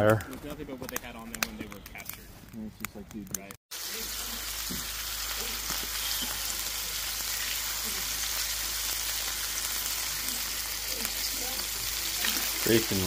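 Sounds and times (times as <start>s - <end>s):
meat sizzling in a skillet: 3.7s - 13.0s.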